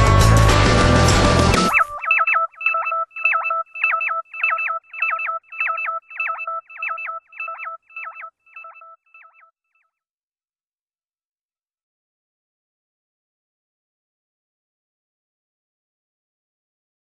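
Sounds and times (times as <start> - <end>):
electronic chirping beeps: 1.6 - 9.5.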